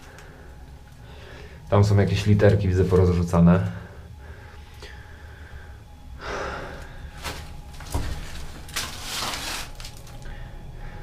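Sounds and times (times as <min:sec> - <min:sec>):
rustling of papers: 0:07.2 - 0:10.4.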